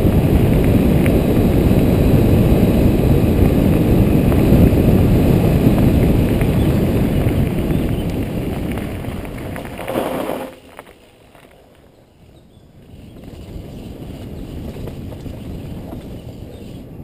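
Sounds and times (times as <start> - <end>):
wind rushing over microphone: 0.0 - 10.8, 11.8 - 17.0
tyres rumbling on gravel: 0.0 - 17.0.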